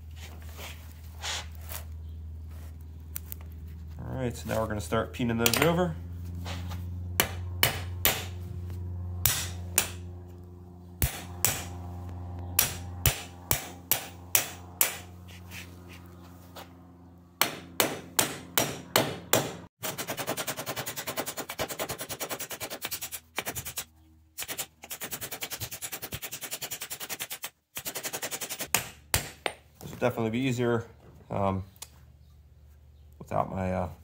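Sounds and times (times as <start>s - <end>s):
hammer striking steel: 7.2s - 8.4s, 9.2s - 10.0s, 11.0s - 11.7s, 12.6s - 15.1s, 17.4s - 19.6s, 28.7s - 29.6s.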